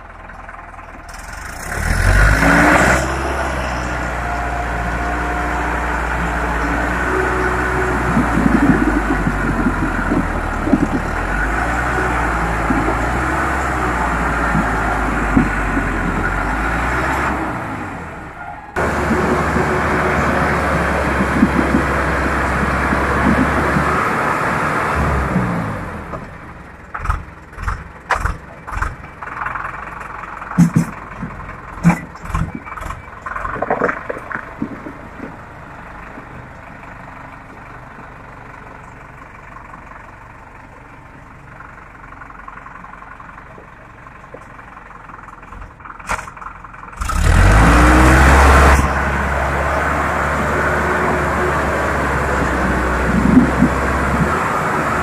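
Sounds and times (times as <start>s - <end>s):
tractor diesel engine labouring: 0.0s - 55.0s
knocks and clatter: 7.8s - 17.3s, 18.8s - 24.2s, 26.1s - 36.8s, 52.2s - 55.0s.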